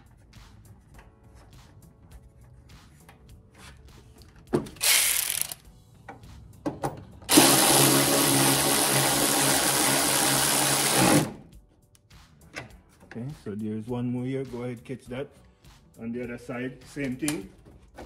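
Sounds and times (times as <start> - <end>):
cordless power tool spinning nuts: 4.8 - 5.6, 7.3 - 11.4
power tool clicks: 4.8 - 5.6.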